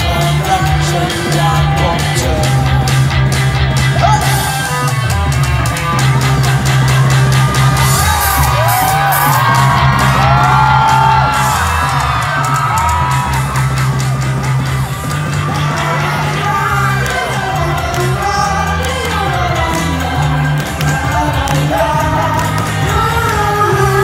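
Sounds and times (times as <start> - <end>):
person singing: 0.0 - 6.4, 15.5 - 24.0
fans yelling and whooping: 0.0 - 24.0
live pop music over loudspeakers: 0.0 - 24.0.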